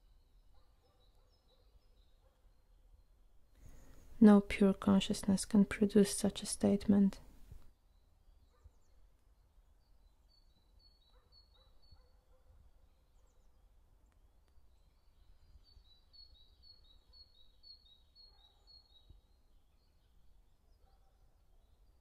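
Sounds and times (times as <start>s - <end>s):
faint songbird song: 0.0s - 22.0s.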